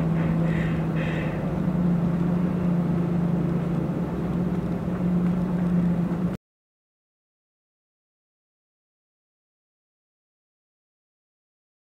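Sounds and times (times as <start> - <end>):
road noise: 0.0 - 6.4
truck engine hum: 0.0 - 6.4.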